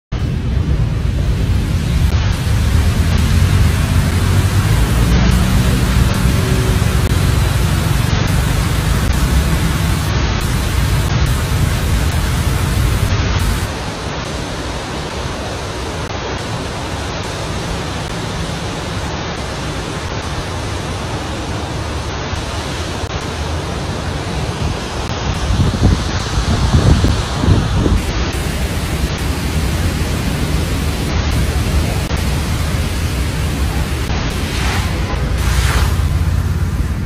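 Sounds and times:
fountain water splashing: 0:00.2 - 0:37.0.

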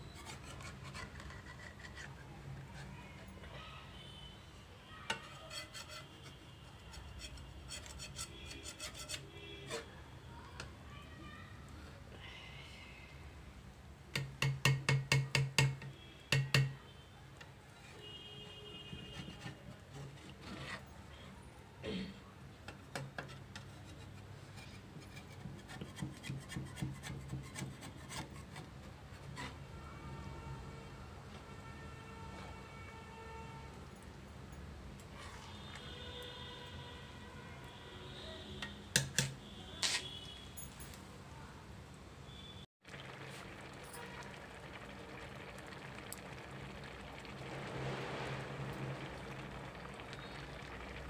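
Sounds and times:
spatula scraping pan: 0:00.0 - 0:03.4, 0:05.1 - 0:10.0, 0:19.1 - 0:21.0, 0:22.7 - 0:29.7
spatula knocking on pan: 0:14.1 - 0:16.8.

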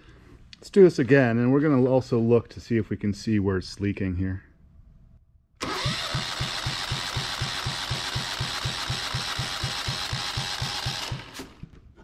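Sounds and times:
diesel engine cranking: 0:05.6 - 0:11.6
starter motor whirring: 0:05.6 - 0:11.8.

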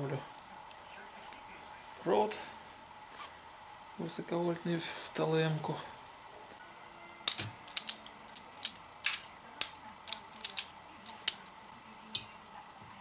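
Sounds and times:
wire stripper clicking: 0:07.3 - 0:11.4.

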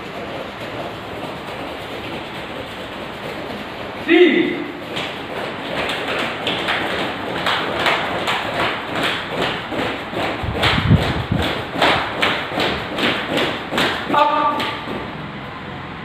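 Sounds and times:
bare feet thumping on foam mats: 0:04.8 - 0:15.2.

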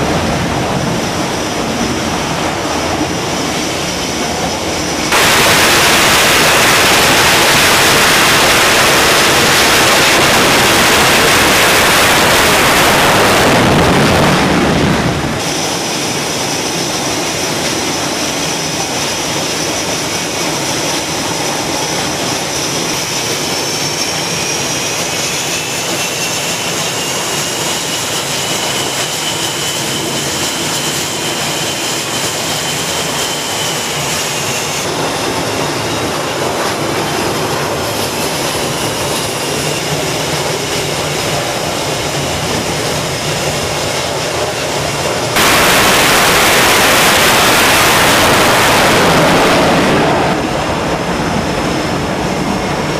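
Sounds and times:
jets idling with high whine: 0:00.0 - 0:35.6, 0:44.4 - 0:50.6
jet engines roaring: 0:00.0 - 0:52.9.

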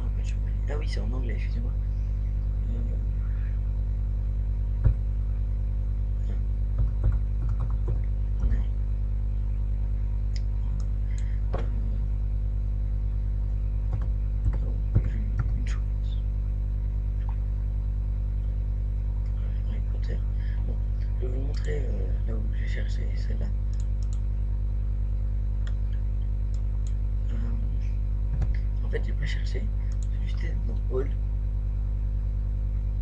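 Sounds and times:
electrical hum: 0:00.0 - 0:33.0
computer keyboard clicks: 0:06.8 - 0:08.1.

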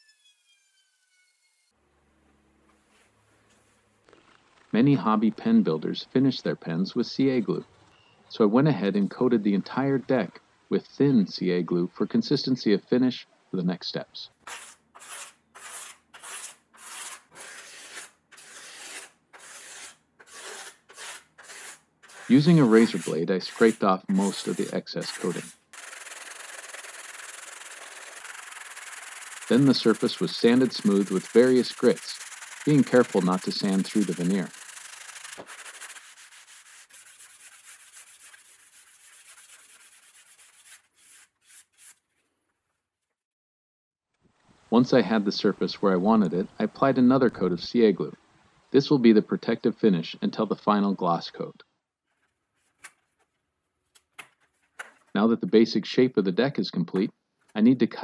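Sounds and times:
sandpaper strokes on wood: 0:14.4 - 0:42.0
razor blade scraping wood: 0:14.4 - 0:42.1.

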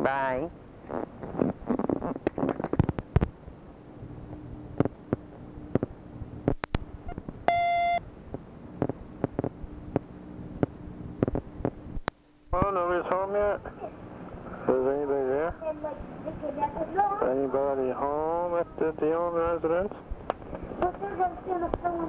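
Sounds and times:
faint line hum: 0:00.0 - 0:22.0
answering machine beep: 0:07.5 - 0:08.0.

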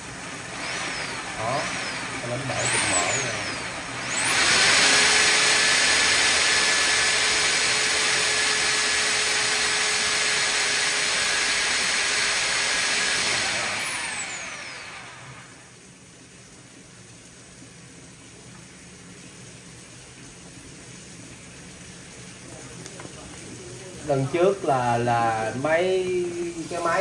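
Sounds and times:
electric motor running with hiss: 0:00.0 - 0:15.7
motor winding down whine: 0:00.0 - 0:15.8, 0:24.4 - 0:27.0.

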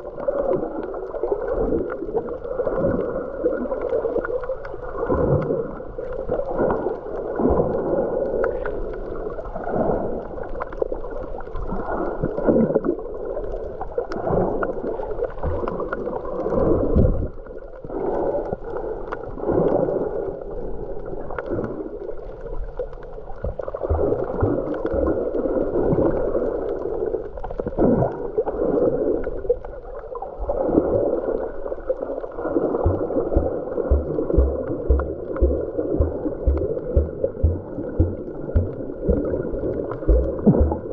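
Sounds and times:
muffled underwater gurgle and rush: 0:00.0 - 0:40.9
short low knocks: 0:32.9 - 0:39.4.

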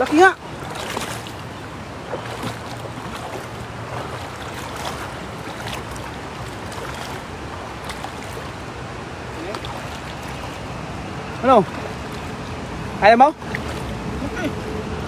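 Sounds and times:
faint water splashes: 0:00.0 - 0:15.0
river water rushing: 0:00.0 - 0:15.0.

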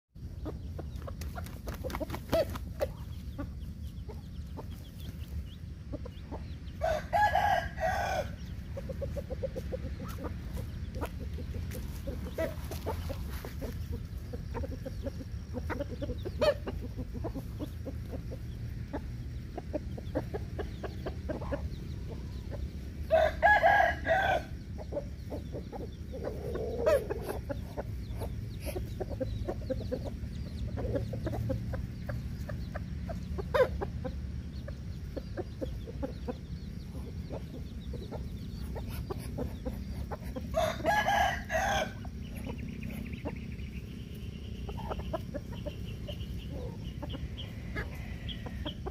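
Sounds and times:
chickens clucking: 0:00.2 - 0:48.9
steady low rumble: 0:00.2 - 0:48.9
rooster crowing: 0:06.8 - 0:08.4, 0:23.1 - 0:24.6, 0:40.5 - 0:42.1, 0:47.4 - 0:48.9.

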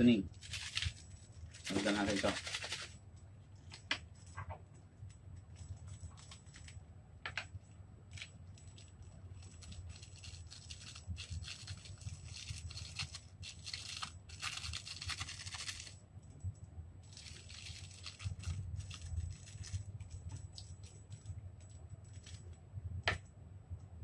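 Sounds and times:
plastic sachets tearing and crinkling: 0:00.3 - 0:02.9, 0:09.3 - 0:15.9, 0:17.1 - 0:19.8.

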